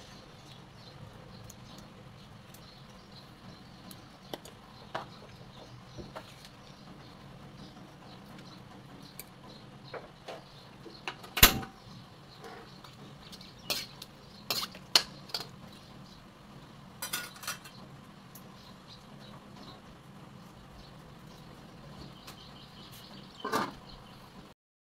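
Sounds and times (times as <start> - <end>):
utensils clinking and scraping in wok: 12.4 - 15.8, 17.0 - 17.8.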